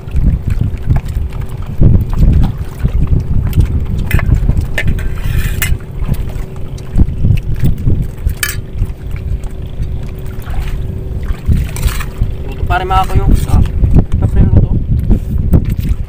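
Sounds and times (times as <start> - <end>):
wind buffeting microphone: 0.0 - 16.0
metal spoons scraping metal bowls: 4.1 - 5.8, 8.4 - 8.6.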